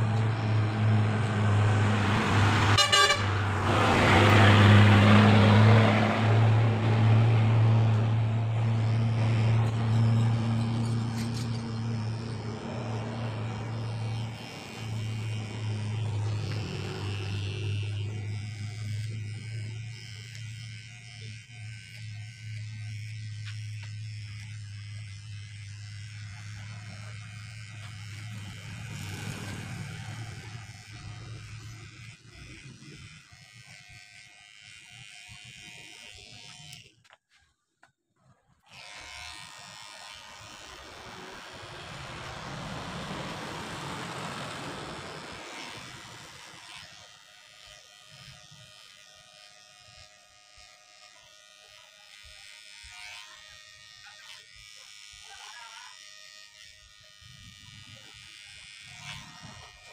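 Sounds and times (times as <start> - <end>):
electric hair clippers humming: 0.0 - 37.2, 38.6 - 59.9
clippers cutting buzz: 0.0 - 59.9.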